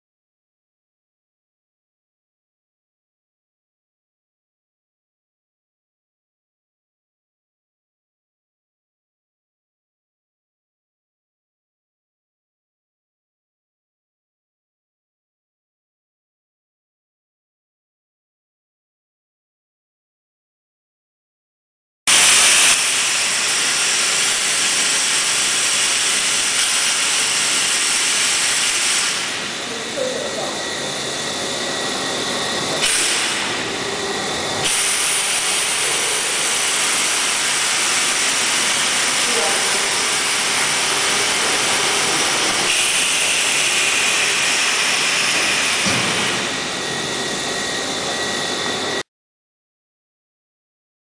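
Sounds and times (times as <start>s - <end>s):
rushing air hiss: 22.1s - 29.6s
machinery hissing and whirring: 22.1s - 49.0s.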